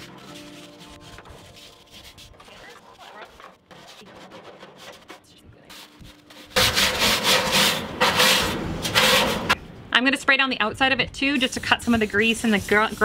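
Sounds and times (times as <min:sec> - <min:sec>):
scrubber scrubbing metal: 0:00.0 - 0:09.6.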